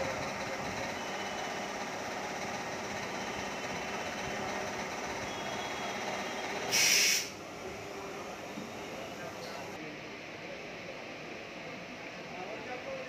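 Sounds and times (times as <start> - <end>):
train running: 0.0 - 9.8
sharp hiss: 6.5 - 7.4.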